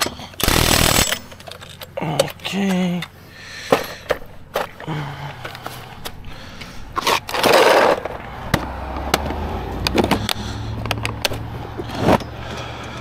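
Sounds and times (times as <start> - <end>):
car engine idling: 0.0 - 13.0
loud scraping rush: 6.9 - 12.3.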